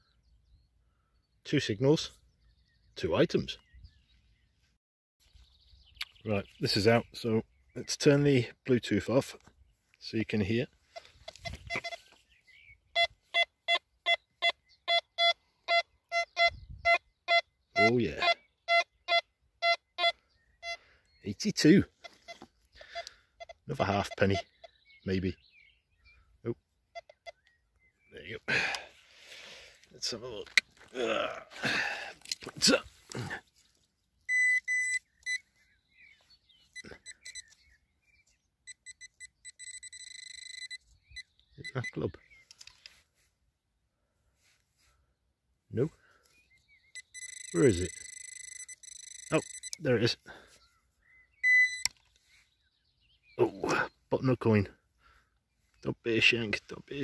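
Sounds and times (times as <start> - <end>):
metal detector beeps: 11.0 - 12.2, 12.9 - 20.8, 21.8 - 24.7, 27.0 - 27.5, 34.2 - 35.6, 36.6 - 37.6, 38.6 - 42.1, 46.9 - 50.1, 51.4 - 52.1.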